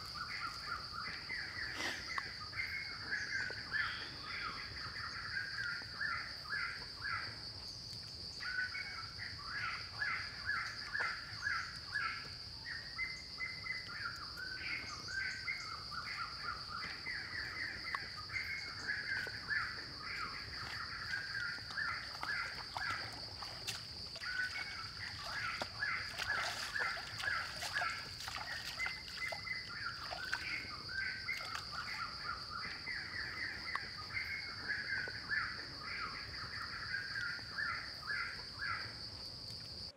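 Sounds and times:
birds calling: 0.0 - 39.0.

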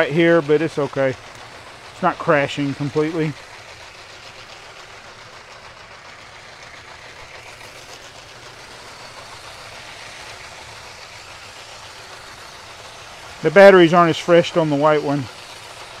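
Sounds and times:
plastic wheels rattling on track: 0.0 - 16.0
small electric motors whirring: 0.0 - 16.0.

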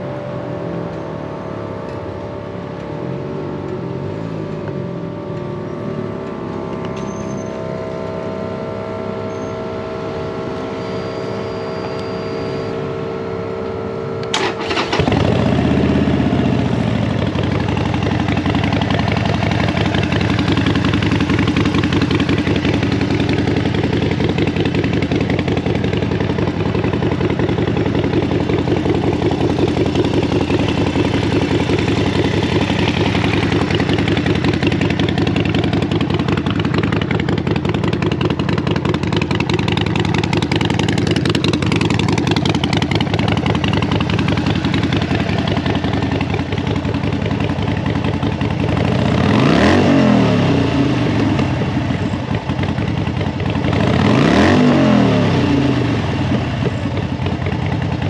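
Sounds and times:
motorcycle engine revving: 0.0 - 58.0
motorcycle engine idling: 14.2 - 58.0.

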